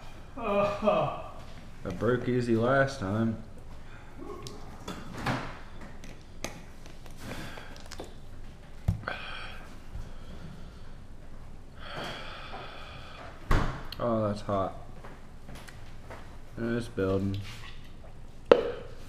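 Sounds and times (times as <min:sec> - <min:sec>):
man breathing hard and gasping: 0:09.0 - 0:11.1, 0:11.8 - 0:13.4.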